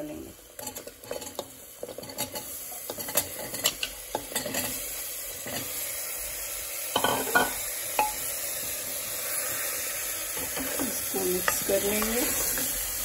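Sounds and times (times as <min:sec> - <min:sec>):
frying sizzle: 0:00.0 - 0:13.0.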